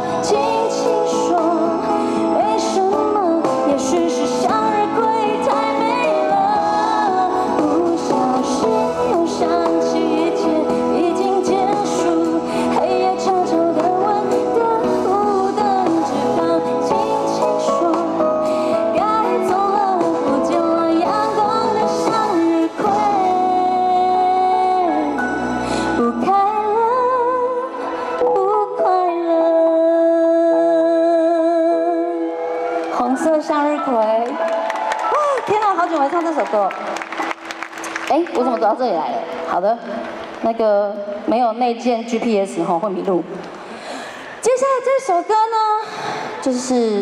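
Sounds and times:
woman singing into a microphone: 0:00.0 - 0:34.4, 0:38.1 - 0:47.0
amplified instrumental backing: 0:00.0 - 0:43.7.

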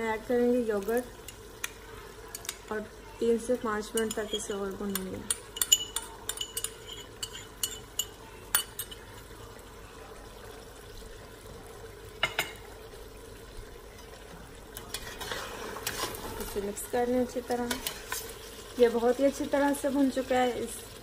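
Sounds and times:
meat frying faint sizzle: 0:00.0 - 0:21.0
metal spoon clinking on pot: 0:03.9 - 0:09.2.

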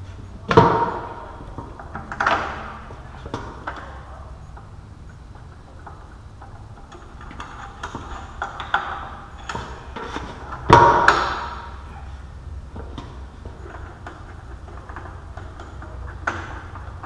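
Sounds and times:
metal clicks and knocks: 0:00.5 - 0:03.9, 0:12.7 - 0:17.0.

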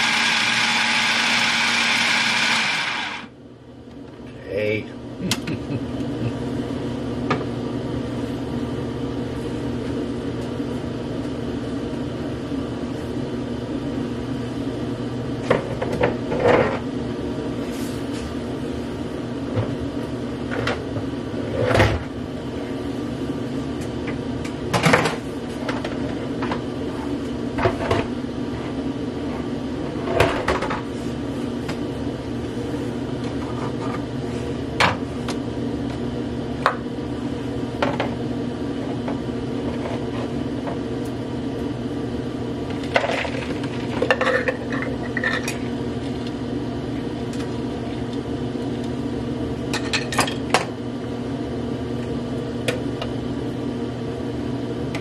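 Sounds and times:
food processor motor running: 0:00.0 - 0:03.4.

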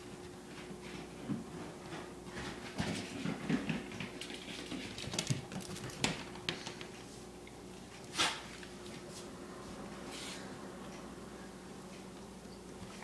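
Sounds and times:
dog claws pattering on wood floor: 0:02.3 - 0:07.0.

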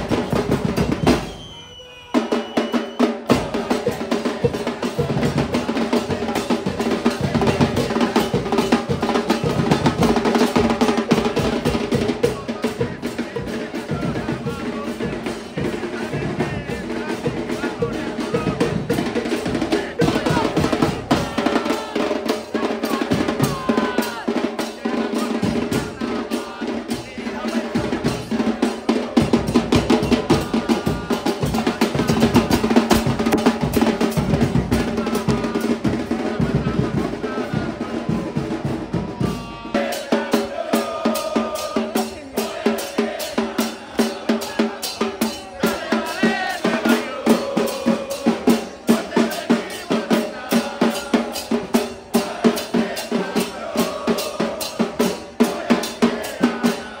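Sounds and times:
bass drum beat: 0:00.0 - 0:01.3, 0:03.2 - 0:24.4, 0:25.2 - 0:43.2
snare drum: 0:00.0 - 0:57.0
drum-driven music with melody: 0:02.2 - 0:56.7.

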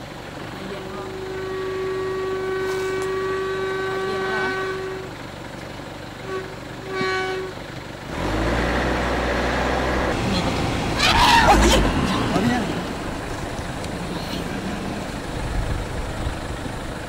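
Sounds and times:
vehicle horn blasts: 0:00.8 - 0:05.3, 0:06.2 - 0:07.7
loud low rumble: 0:09.1 - 0:17.0.

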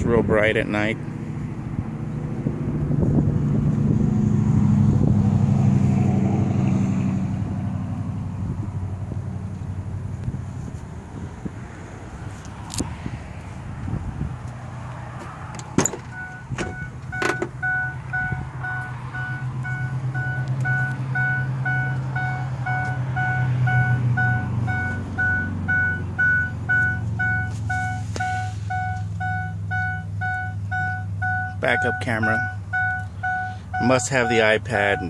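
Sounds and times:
truck warning chime beeping: 0:16.0 - 0:35.0.

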